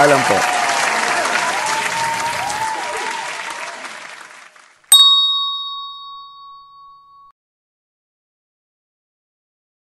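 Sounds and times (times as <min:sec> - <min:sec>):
applause: 0:00.0 - 0:04.9
hand-bell ding: 0:04.9 - 0:07.3.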